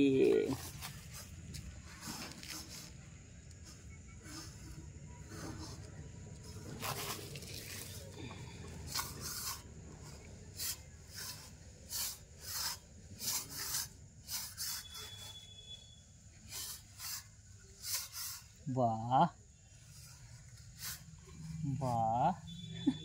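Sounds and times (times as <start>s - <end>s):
metal plate scraping sand: 3.7s - 5.9s, 8.9s - 15.4s.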